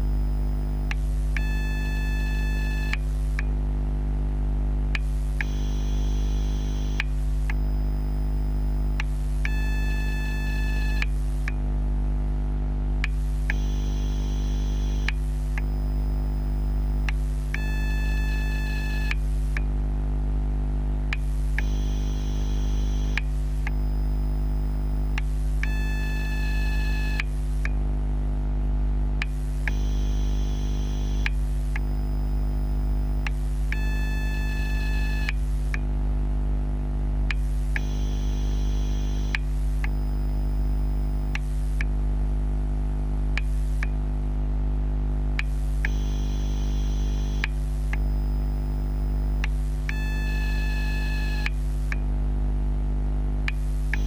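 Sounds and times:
battery charger electrical hum: 0.0 - 54.0
faint click: 4.9 - 5.7, 6.7 - 7.8, 13.0 - 13.9, 14.8 - 15.9, 17.0 - 17.6, 19.0 - 19.7, 23.0 - 23.9, 25.1 - 25.7, 29.2 - 29.9, 31.2 - 32.0, 35.2 - 35.8, 39.2 - 40.0, 47.1 - 48.3, 49.4 - 50.0, 53.5 - 54.0.

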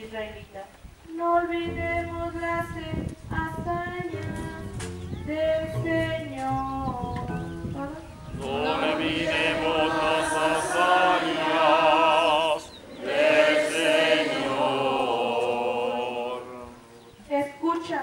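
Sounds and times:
liturgical singing with vibrato: 5.2 - 17.2.

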